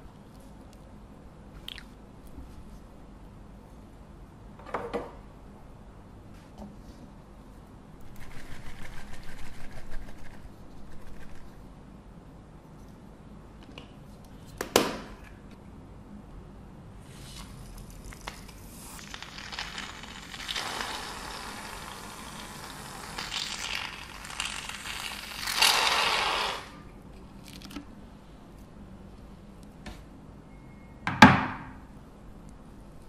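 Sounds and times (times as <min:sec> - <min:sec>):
aerosol foam can spraying: 0:18.8 - 0:26.8.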